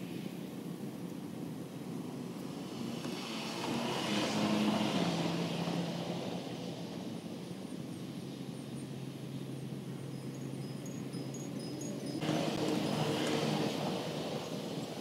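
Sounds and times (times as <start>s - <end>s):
motor vehicle passing by: 2.3s - 7.7s, 10.4s - 15.0s.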